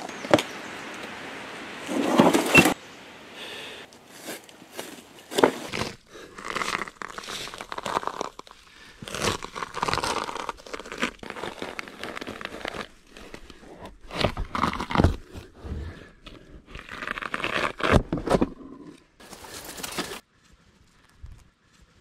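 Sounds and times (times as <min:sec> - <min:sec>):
bark tearing and crackling: 0:04.2 - 0:15.4, 0:16.7 - 0:18.5.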